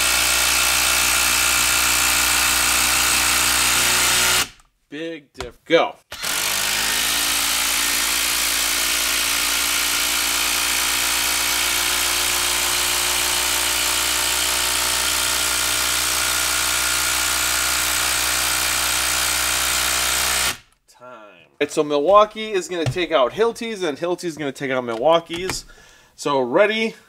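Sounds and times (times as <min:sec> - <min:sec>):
impact driver hammering into wood: 0:00.0 - 0:04.6, 0:06.1 - 0:20.7.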